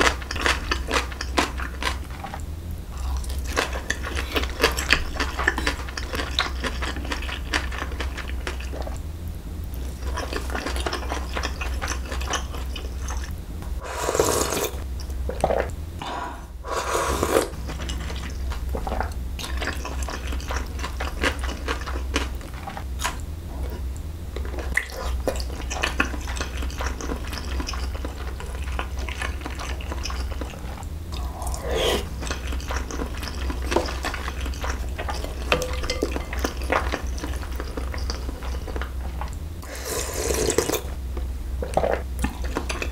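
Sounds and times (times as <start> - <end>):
wet chewing of food: 0.0 - 2.4, 3.0 - 9.0, 9.7 - 13.3, 17.0 - 42.9
slurping noodles: 13.8 - 14.8, 16.6 - 17.6, 29.7 - 35.2, 39.6 - 40.9.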